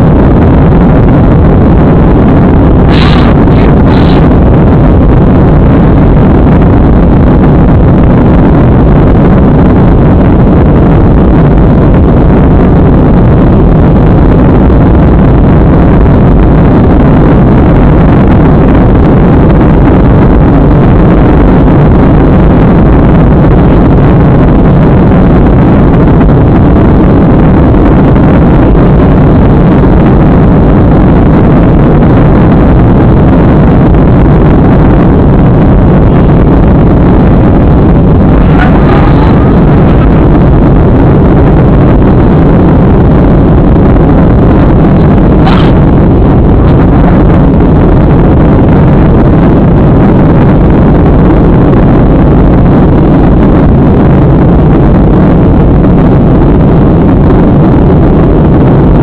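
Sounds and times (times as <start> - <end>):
jet engines and air rushing: 0.0 - 17.4, 26.6 - 49.6.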